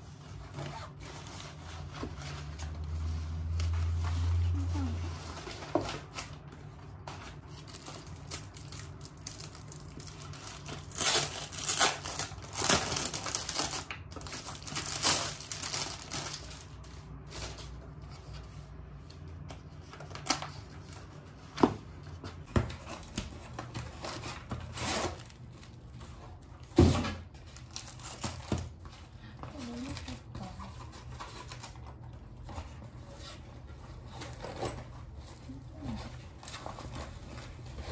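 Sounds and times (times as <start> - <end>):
plastic packaging crinkling: 0.9 - 17.9, 27.4 - 28.8.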